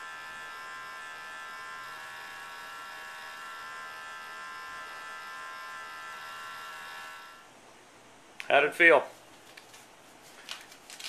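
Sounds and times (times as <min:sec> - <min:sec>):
small electric motor whine: 0:00.0 - 0:07.5.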